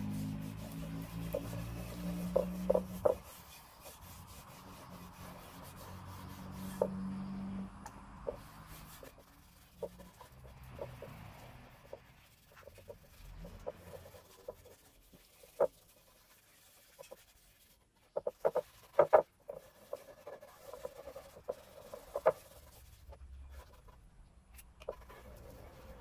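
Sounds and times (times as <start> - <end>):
hand rubbing finish on wood: 0.0 - 24.0.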